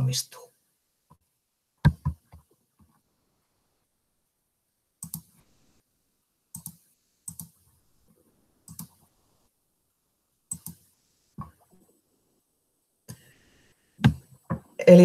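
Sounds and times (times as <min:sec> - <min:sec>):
faint computer mouse clicks: 0:05.0 - 0:05.4, 0:06.5 - 0:07.6, 0:08.7 - 0:09.1, 0:10.5 - 0:11.7.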